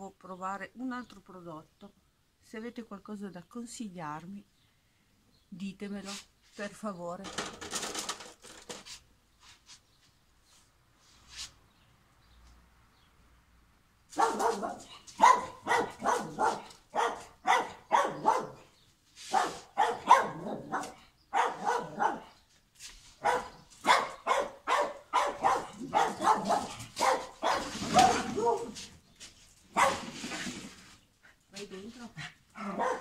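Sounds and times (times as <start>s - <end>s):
dog barking: 14.1s - 18.7s, 19.3s - 22.4s, 23.2s - 28.8s, 29.7s - 30.1s, 32.5s - 33.0s.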